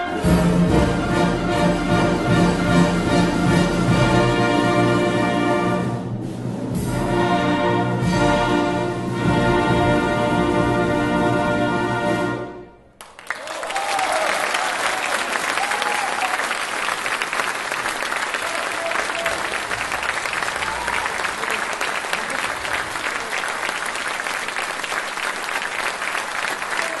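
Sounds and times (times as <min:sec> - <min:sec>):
audience applause: 0:13.0 - 0:27.0.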